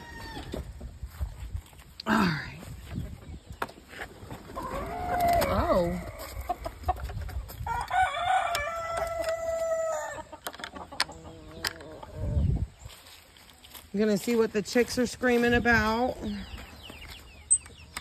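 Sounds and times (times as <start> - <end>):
rooster crowing: 7.7 - 10.3.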